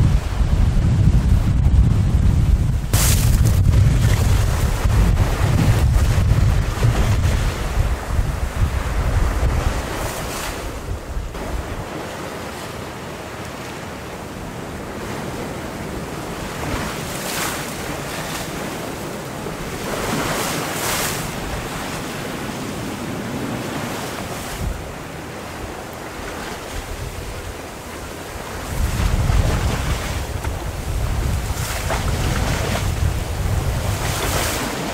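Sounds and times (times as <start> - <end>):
wind buffeting microphone: 0.0 - 12.2, 14.5 - 34.9
waves washing through slush ice: 2.9 - 34.9.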